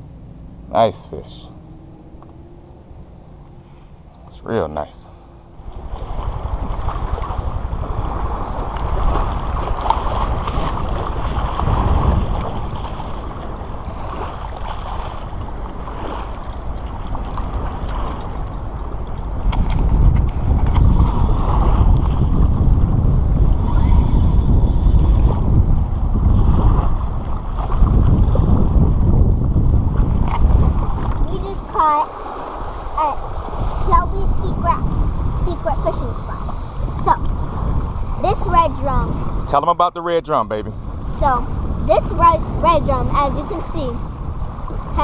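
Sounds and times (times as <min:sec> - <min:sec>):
wind buffeting microphone: 0:01.5 - 0:45.0
water slapping against hull: 0:05.6 - 0:23.6, 0:24.2 - 0:39.5.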